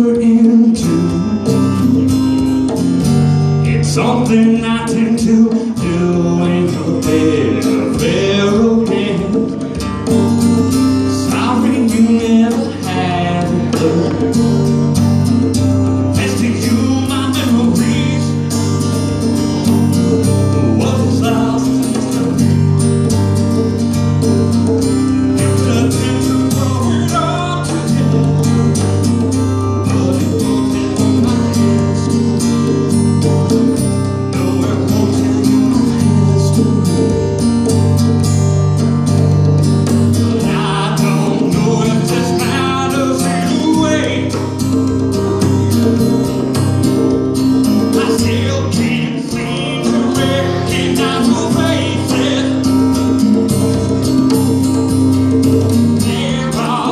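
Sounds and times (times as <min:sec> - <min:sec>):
man singing: 0:00.0 - 0:02.1, 0:03.6 - 0:09.8, 0:11.0 - 0:14.6, 0:16.1 - 0:18.9, 0:20.4 - 0:22.5, 0:25.4 - 0:37.5, 0:40.2 - 0:44.7, 0:47.8 - 0:53.2, 0:55.9 - 0:56.9
acoustic guitar strumming: 0:00.0 - 0:56.9
conga drums: 0:00.0 - 0:56.9.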